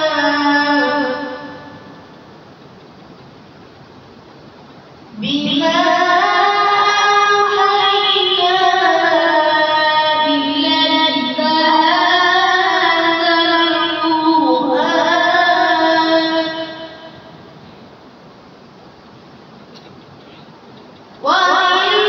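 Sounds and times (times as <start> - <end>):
boy chanting melodically into microphone: 0.0 - 1.9, 5.1 - 17.2, 21.2 - 22.0.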